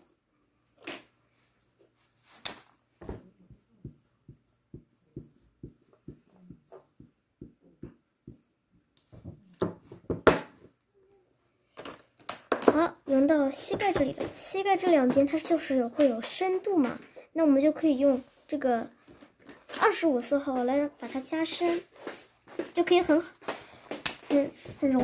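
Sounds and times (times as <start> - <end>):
marker pen tapping on paper: 3.0 - 8.5.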